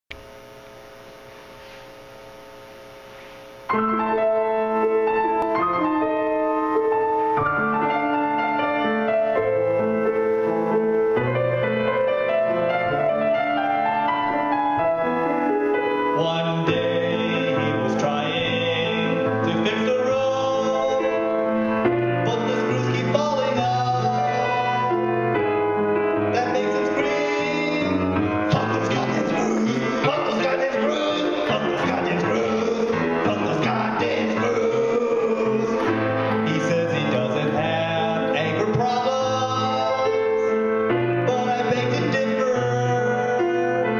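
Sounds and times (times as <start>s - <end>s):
piano chords: 0.1s - 43.9s
man singing: 16.0s - 25.4s, 26.2s - 43.9s.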